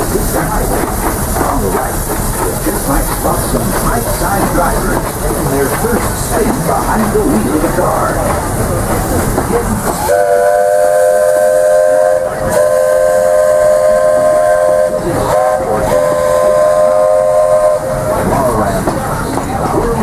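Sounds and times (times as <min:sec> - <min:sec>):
steam locomotive whistle chord: 0:10.0 - 0:18.3.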